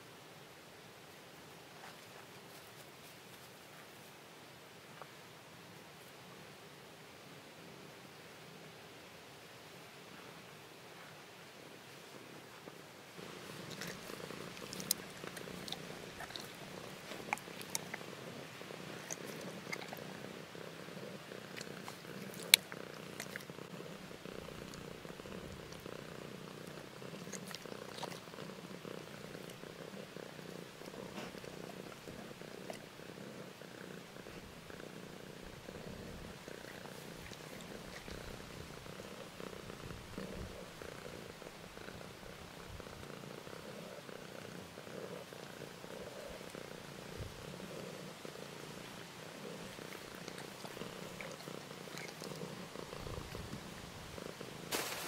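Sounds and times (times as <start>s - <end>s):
cat purring: 10.0s - 55.0s.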